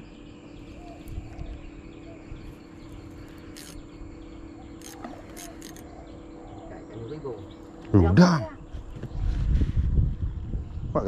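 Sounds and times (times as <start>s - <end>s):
crickets chirring: 0.0s - 11.0s
low hum: 0.0s - 11.0s
sharp clicks: 3.4s - 3.8s, 4.8s - 5.9s.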